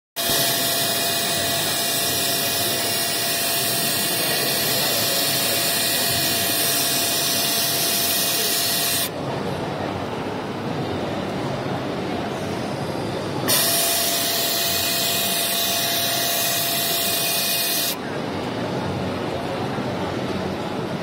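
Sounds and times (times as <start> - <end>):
machine hissing: 0.2 - 9.1, 13.4 - 18.0
quiet machine running noise: 0.2 - 21.0.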